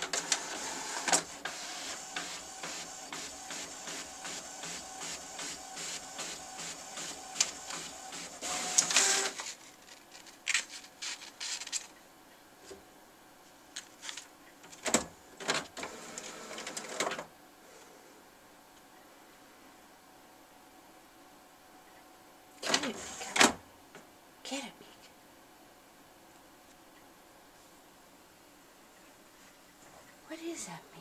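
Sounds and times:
inkjet printer printing: 0.0 - 9.6, 15.4 - 17.2, 22.7 - 23.5.

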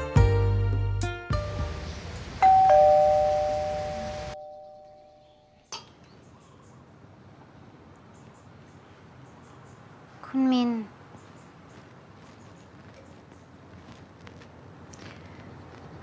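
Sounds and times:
two-tone doorbell chime: 2.4 - 5.5.

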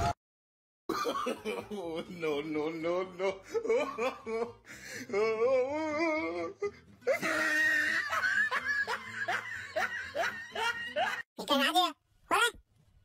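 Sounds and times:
person laughing: 0.9 - 11.3.

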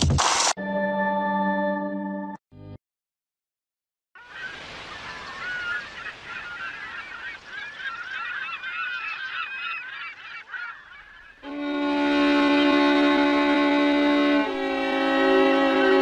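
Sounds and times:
flock of gulls calling: 4.2 - 13.4, 15.1 - 16.0.

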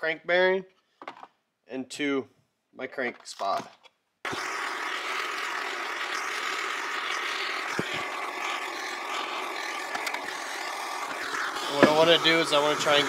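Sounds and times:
gas torch hissing: 4.3 - 13.0.

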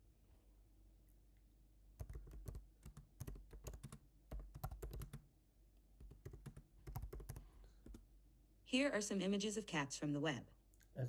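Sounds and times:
computer keyboard typing: 2.0 - 5.2, 6.0 - 8.1.

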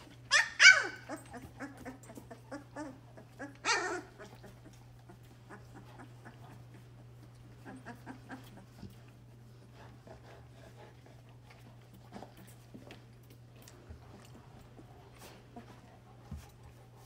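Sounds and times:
puppies yelping: 0.0 - 8.9
puppies whimpering: 0.0 - 12.5.

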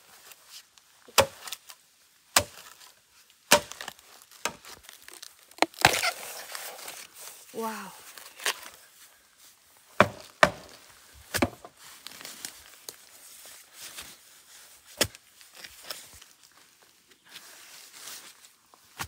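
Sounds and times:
blade chopping bamboo: 1.1 - 1.6, 2.4 - 2.6, 3.5 - 4.7, 10.0 - 11.6.

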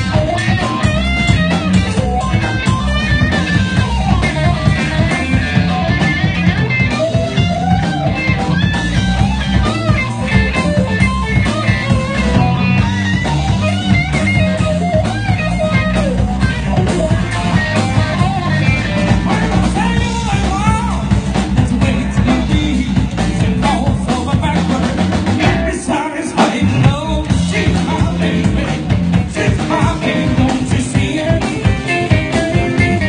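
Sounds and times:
drum kit: 0.0 - 33.0
electric bass: 0.0 - 33.0
electric guitar: 0.0 - 33.0
man singing: 19.1 - 32.6.

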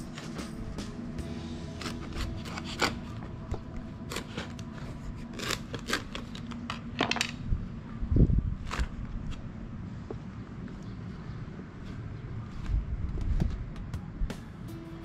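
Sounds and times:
knife cracking through husk: 1.8 - 6.7.

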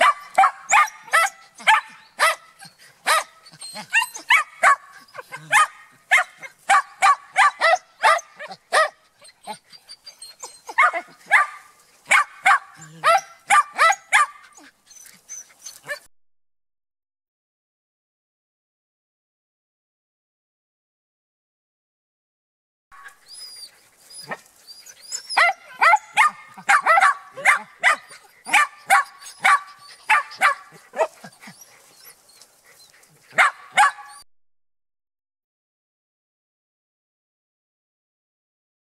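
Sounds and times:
dog barking in high-pitched yaps: 0.0 - 9.0, 10.6 - 14.6, 25.3 - 31.3, 33.3 - 34.2.

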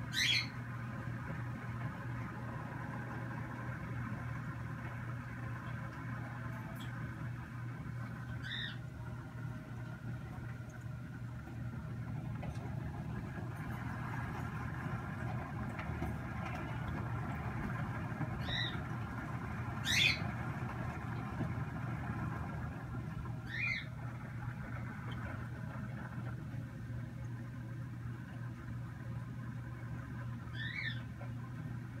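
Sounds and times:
low room hum: 0.0 - 32.0.

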